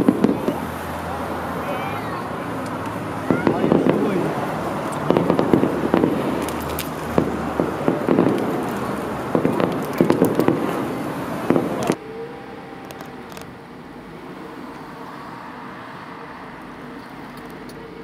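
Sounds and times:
fireworks cracking and popping: 0.0s - 1.0s, 2.1s - 12.0s
distant fireworks bangs: 0.0s - 12.0s
street traffic: 0.0s - 18.0s.

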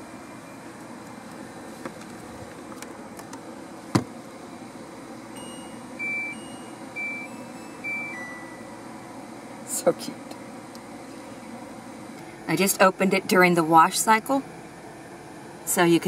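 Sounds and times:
short electronic beeps: 5.4s - 8.6s.

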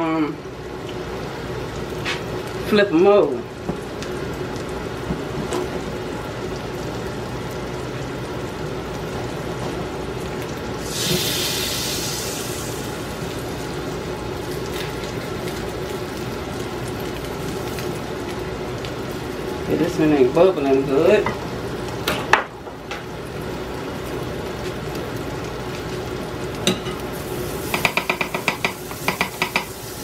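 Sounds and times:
batter sizzling in a pan: 0.0s - 30.0s
spatula working in a pan: 24.5s - 30.0s.

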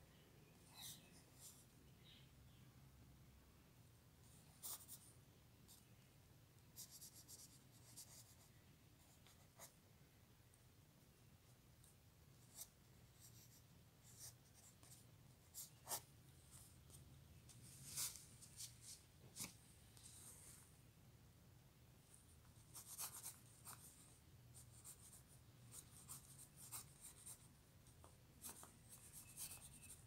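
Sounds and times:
faint low hum: 0.0s - 30.0s
pencil scratching on paper: 4.5s - 5.1s, 6.8s - 9.8s, 12.4s - 16.1s, 22.6s - 27.5s, 28.4s - 30.0s.

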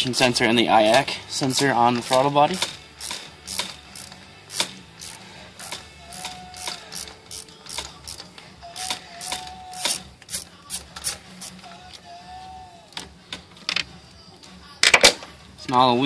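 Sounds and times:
ratchet wrench clicking: 1.5s - 12.0s.

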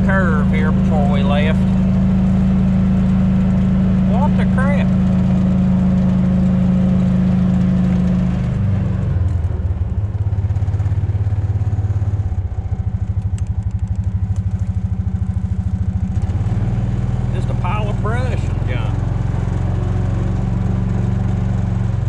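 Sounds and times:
utility vehicle engine running: 0.0s - 22.0s.

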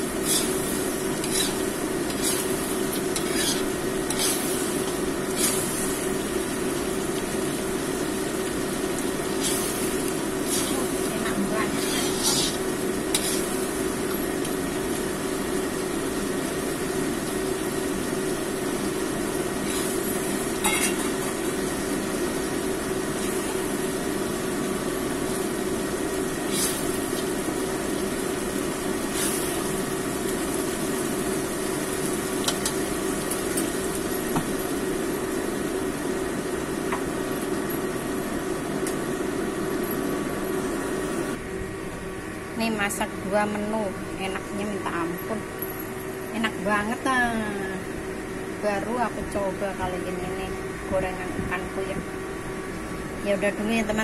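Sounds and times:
food sizzling in a wok: 0.0s - 41.5s.

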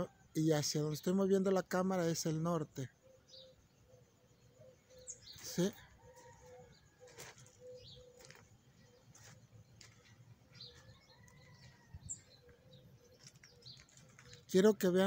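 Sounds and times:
faint bird chirps: 0.0s - 15.0s.

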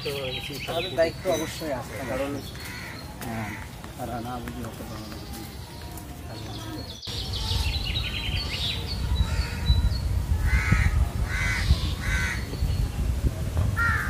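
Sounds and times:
crows cawing: 1.0s - 3.8s, 10.5s - 12.5s, 13.8s - 14.0s.

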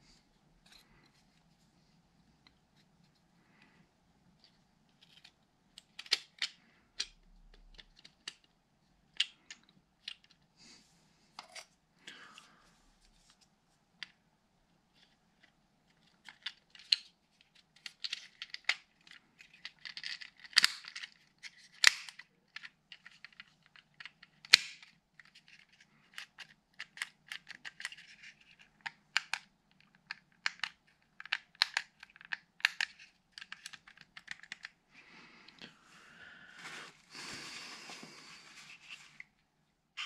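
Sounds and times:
plastic parts clicking and snapping: 4.4s - 10.5s, 15.0s - 34.8s.

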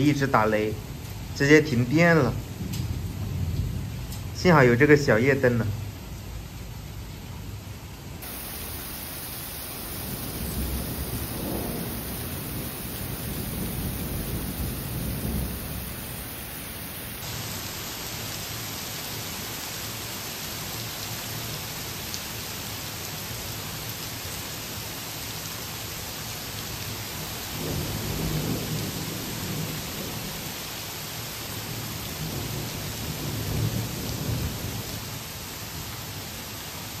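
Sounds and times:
low thunder rolling: 8.2s - 17.2s, 27.6s - 30.4s
heavy rain pouring: 8.2s - 37.0s.

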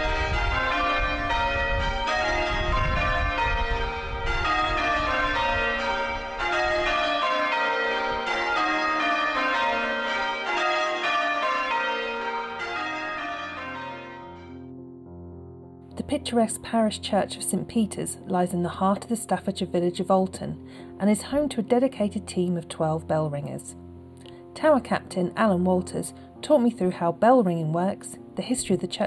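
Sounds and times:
church bells ringing: 0.0s - 15.3s.

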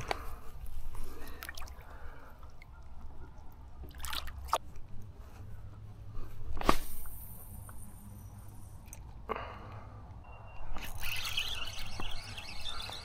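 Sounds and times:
water splashes: 1.1s - 2.7s, 3.8s - 4.7s.

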